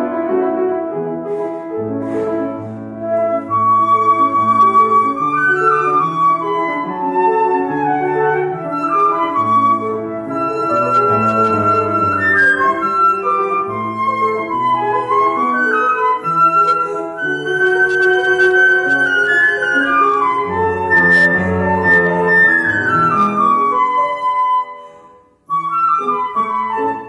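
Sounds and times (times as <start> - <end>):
flute melody: 0.0 - 27.0
piano accompaniment: 0.0 - 27.0.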